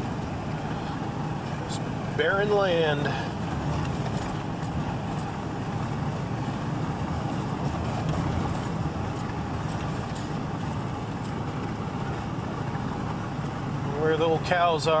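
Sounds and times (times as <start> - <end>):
truck engine and road noise: 0.0 - 15.0.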